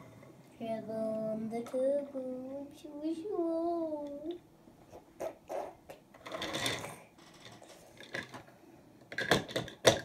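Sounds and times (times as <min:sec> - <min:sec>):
plastic clicking and rattling: 0:06.2 - 0:08.5, 0:09.1 - 0:10.0.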